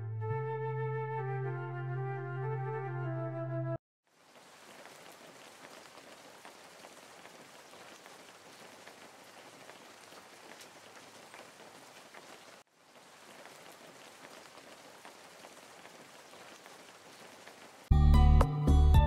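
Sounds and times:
rain on wet pavement: 0:04.1 - 0:17.9.

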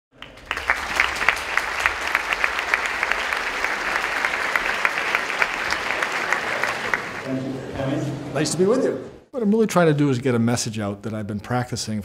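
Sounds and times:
audience clapping: 0:00.1 - 0:07.3.

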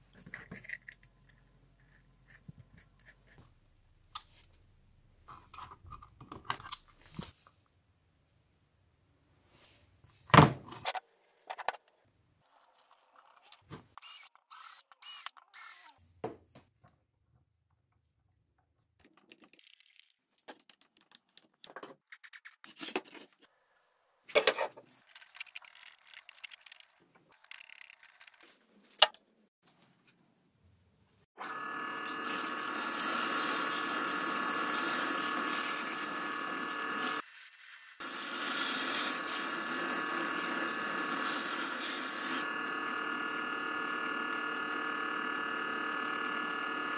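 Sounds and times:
drill press spinning: 0:14.0 - 0:15.9, 0:31.4 - 0:37.2, 0:38.0 - 0:46.9.

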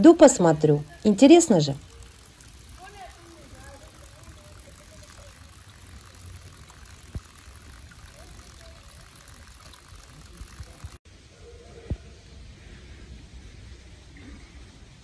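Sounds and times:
water trickling into stone basin: 0:00.0 - 0:11.0
faint distant voices: 0:00.0 - 0:14.8.

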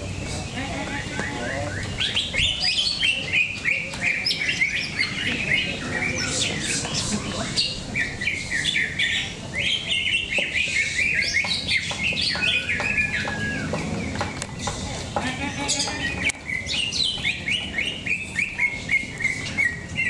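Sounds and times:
birds chirping and whistling: 0:00.0 - 0:20.0
low background murmur: 0:00.0 - 0:20.0.

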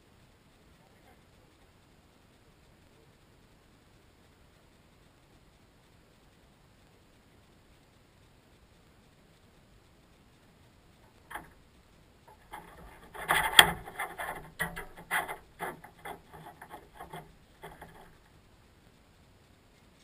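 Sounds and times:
rope rubbing and scraping: 0:11.1 - 0:11.6, 0:12.3 - 0:18.3.

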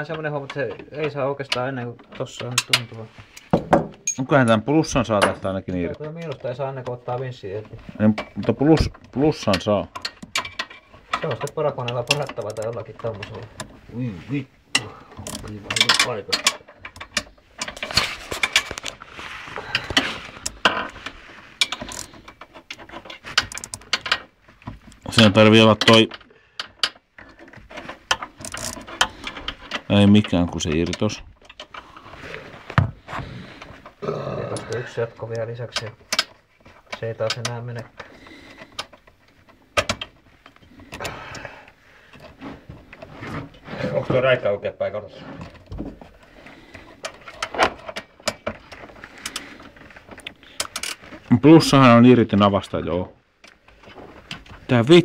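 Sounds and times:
metal tools clinking and scraping: 0:00.0 - 0:13.8, 0:14.7 - 0:19.0, 0:19.6 - 0:24.3
ratchet rasping: 0:28.1 - 0:29.7.

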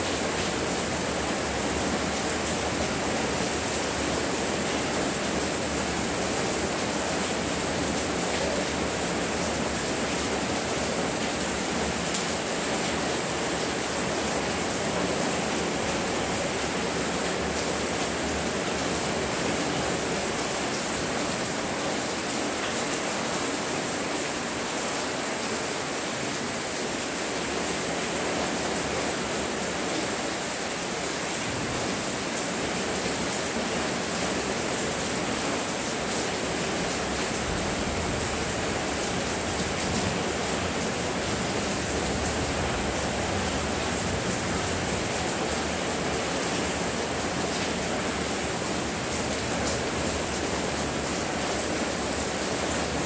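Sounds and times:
heavy rain downpour: 0:00.0 - 0:53.0.

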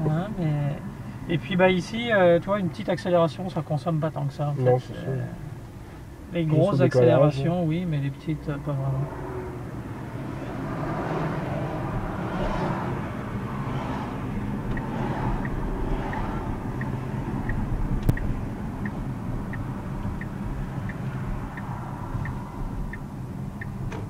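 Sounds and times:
road and tyre noise: 0:00.0 - 0:24.0
turn signal ticking: 0:12.9 - 0:24.0.

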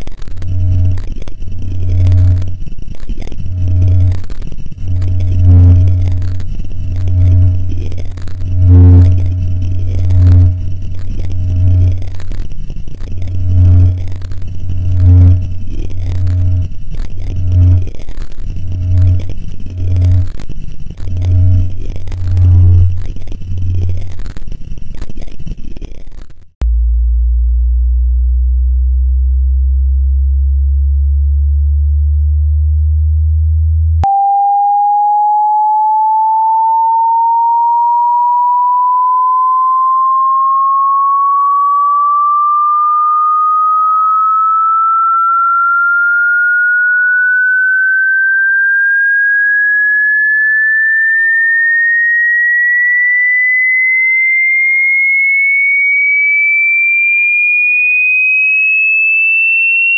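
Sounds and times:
pure tone gliding upward: 0:00.0 - 0:24.1, 0:29.8 - 0:57.5
rough low buzz: 0:00.0 - 0:24.5, 0:26.6 - 0:36.8
steady deep hum: 0:00.0 - 0:25.3, 0:26.6 - 0:37.7.

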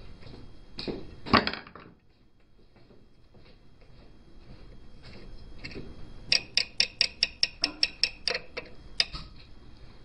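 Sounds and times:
hand tool clicking on metal: 0:06.3 - 0:09.3.

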